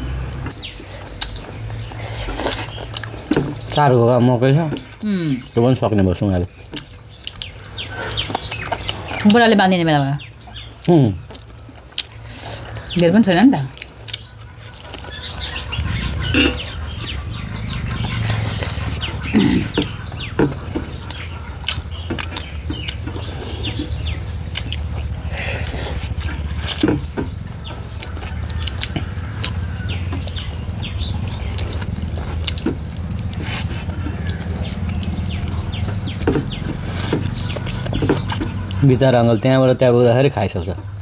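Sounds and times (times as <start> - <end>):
chewing with clicks and smacks: 0.0 - 3.9, 6.5 - 41.0
steady low rumble: 6.5 - 39.0.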